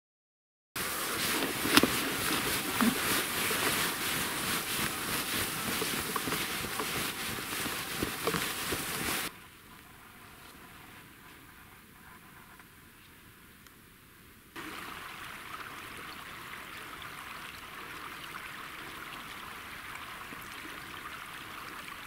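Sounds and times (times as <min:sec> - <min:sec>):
cloth flags rustling and crackling: 0:00.8 - 0:09.3
faint hiss: 0:00.8 - 0:22.0.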